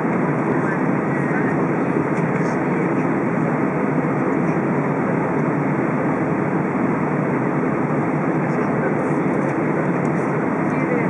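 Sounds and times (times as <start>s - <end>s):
airliner cabin rumble: 0.0s - 11.0s.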